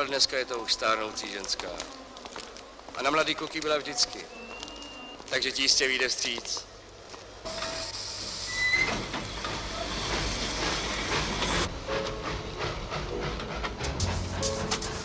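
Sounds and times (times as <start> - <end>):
steam locomotive hissing: 7.4 - 15.0
music: 11.9 - 15.0.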